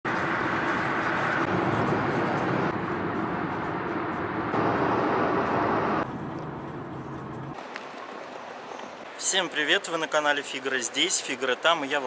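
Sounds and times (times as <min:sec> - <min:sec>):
car engine and road noise: 0:00.0 - 0:09.3.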